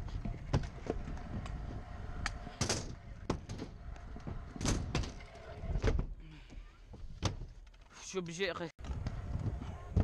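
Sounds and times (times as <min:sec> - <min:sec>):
scooter wheels rumbling on concrete: 0:00.0 - 0:05.8, 0:08.8 - 0:10.0.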